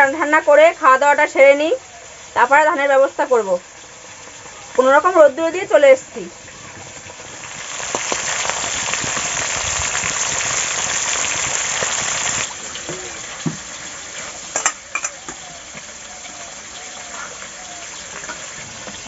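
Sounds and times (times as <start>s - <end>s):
food sizzling in oil: 0.0s - 19.0s.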